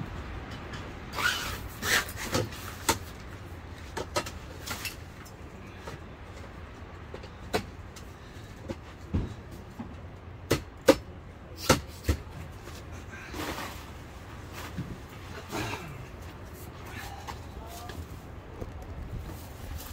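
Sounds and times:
tent gear scraping and rustling: 1.1 - 5.2, 12.6 - 18.2, 19.1 - 19.9
steady low rumble: 12.4 - 19.9.

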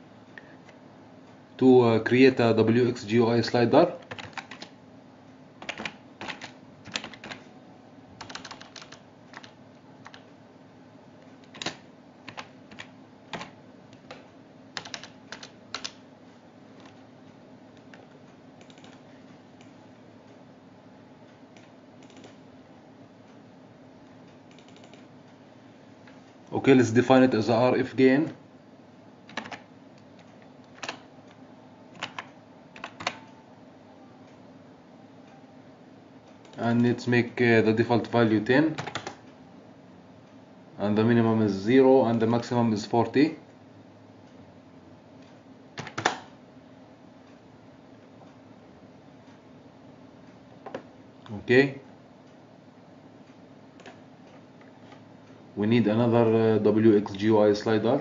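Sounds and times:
faint steady hum: 0.0 - 58.0
keyboard typing: 3.9 - 4.8, 5.6 - 7.5, 8.2 - 10.3, 11.3 - 16.0, 16.7 - 17.0, 17.8 - 19.7, 21.6 - 22.4, 24.4 - 25.1, 29.3 - 33.4, 38.7 - 39.3, 45.2 - 46.4.

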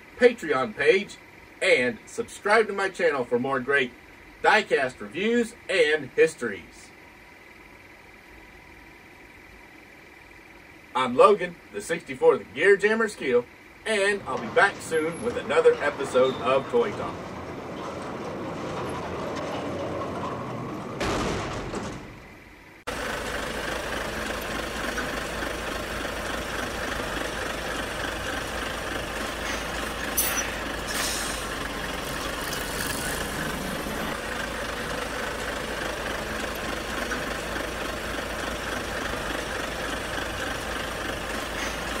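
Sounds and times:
diesel truck idling: 0.0 - 42.0
doors swinging shut: 14.2 - 22.4
air brake hisses: 29.4 - 31.6, 41.5 - 41.9.

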